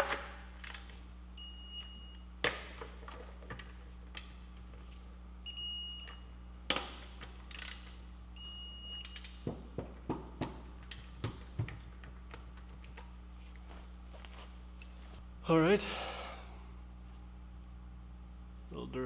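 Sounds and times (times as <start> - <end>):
short electronic beeps: 8.4 - 9.2.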